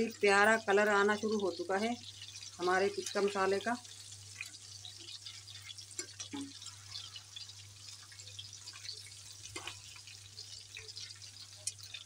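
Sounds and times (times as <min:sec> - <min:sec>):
meat sizzling in hot oil: 0:00.0 - 0:12.0
metal tongs clicking on pan: 0:05.7 - 0:06.7, 0:08.7 - 0:10.0, 0:10.8 - 0:12.0.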